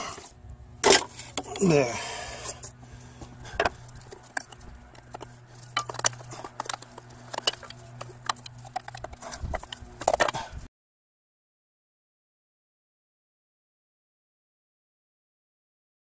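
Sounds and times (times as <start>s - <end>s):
steady low hum: 0.0s - 10.7s.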